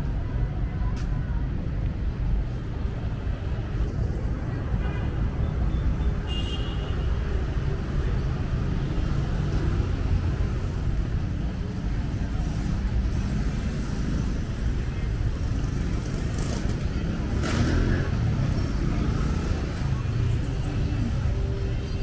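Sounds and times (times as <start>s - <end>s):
road vehicles rumbling past: 7.1s - 22.0s.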